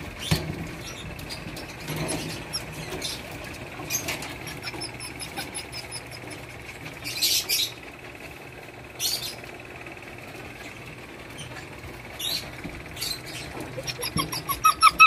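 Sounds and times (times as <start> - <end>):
puppies scrabbling on cage floor: 0.0 - 7.0.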